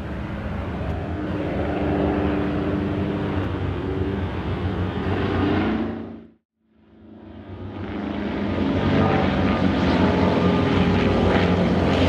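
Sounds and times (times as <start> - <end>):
propeller planes droning overhead: 0.0 - 12.0.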